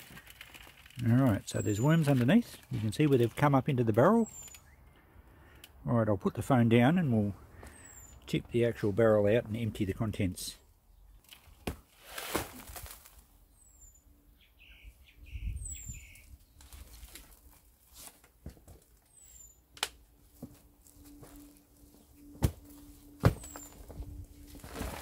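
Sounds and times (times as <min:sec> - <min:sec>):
faint bird chirps: 0:13.5 - 0:16.6.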